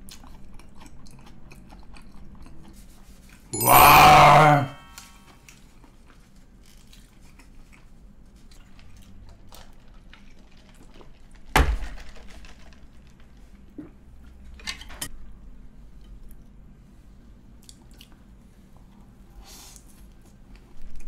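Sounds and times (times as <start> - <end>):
quiet chewing: 0.0 - 3.5, 5.4 - 11.4, 17.6 - 21.0.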